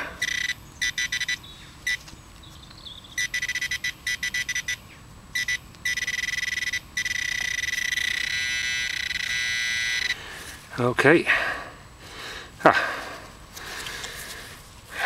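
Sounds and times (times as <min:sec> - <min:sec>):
pinpointer probe beeping: 0:00.2 - 0:02.1, 0:03.2 - 0:10.2.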